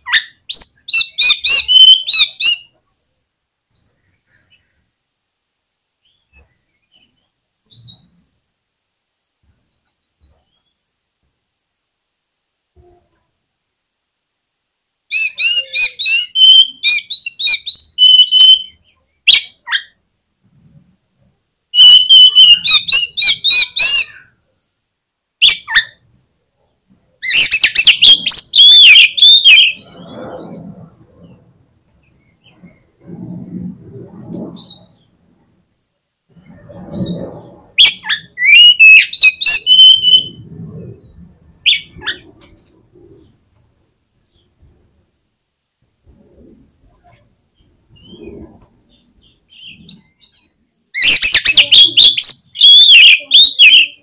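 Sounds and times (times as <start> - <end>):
bird singing whistled notes: 0.1 - 2.7, 15.1 - 19.6, 21.8 - 24.2, 27.2 - 30.6, 37.8 - 40.4, 49.0 - 54.0
short harsh bird notes: 0.1 - 2.7, 21.8 - 24.3.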